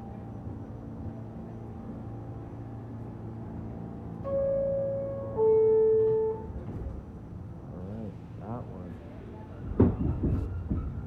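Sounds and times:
train hum: 0.0s - 11.0s
subway door-closing chime: 4.1s - 7.1s.

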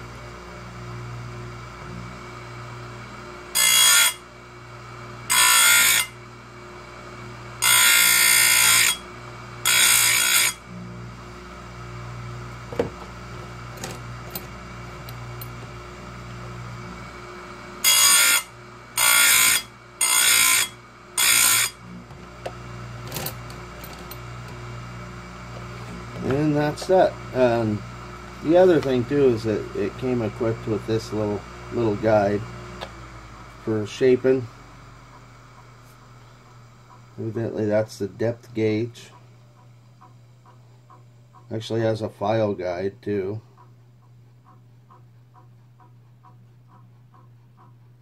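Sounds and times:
grinder motor humming: 0.0s - 48.0s
grinding wheel screeching on metal: 3.5s - 4.2s, 5.2s - 6.2s, 7.6s - 10.8s, 17.8s - 22.1s, 25.6s - 27.8s.

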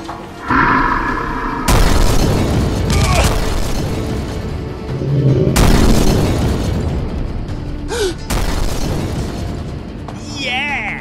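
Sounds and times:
action film music: 0.0s - 11.0s
explosion boom: 0.4s - 3.4s, 4.5s - 7.3s.

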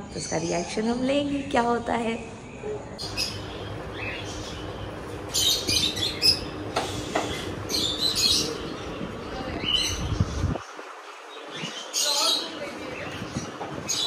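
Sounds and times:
steady low hum: 2.2s - 14.0s
bird-like chirps: 2.3s - 14.0s.

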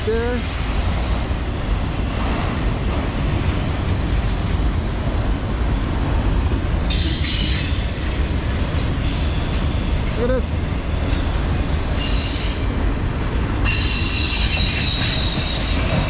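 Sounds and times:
freight train wheels rumbling: 0.0s - 16.0s.

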